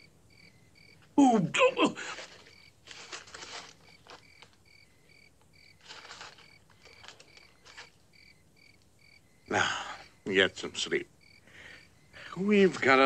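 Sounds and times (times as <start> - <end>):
cricket chirping: 0.0 - 13.0
soft rustles: 2.0 - 4.7, 5.4 - 8.2.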